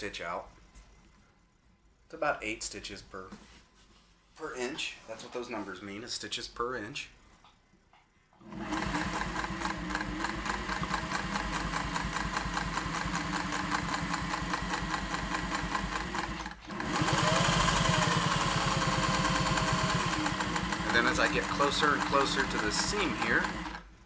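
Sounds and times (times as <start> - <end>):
sewing machine stitching: 8.4 - 23.9.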